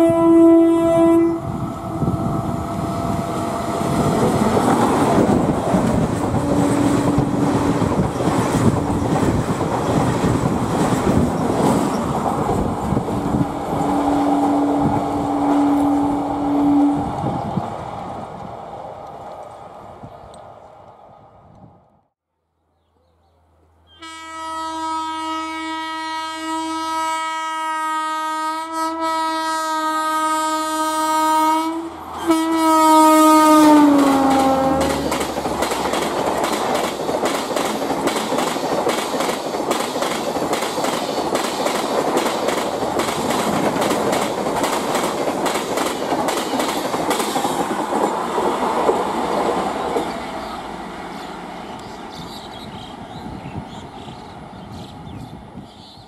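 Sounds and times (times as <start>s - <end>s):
electric locomotive horn: 0.0s - 4.6s, 6.3s - 7.7s, 13.6s - 17.2s, 23.9s - 35.2s
train wheels clattering over rail joints: 4.0s - 13.5s, 33.9s - 50.5s.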